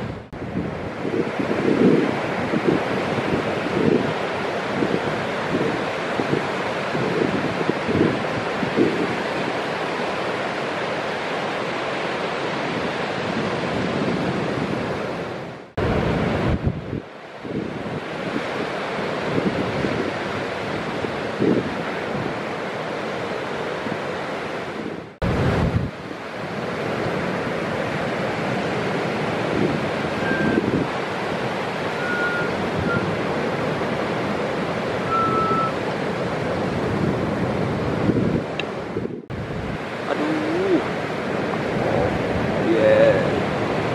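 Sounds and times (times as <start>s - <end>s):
ocean surf breaking: 0.0s - 43.9s
wind gust on microphone: 0.0s - 43.9s
faint high whistles: 30.2s - 30.6s, 32.0s - 33.1s, 35.0s - 35.8s.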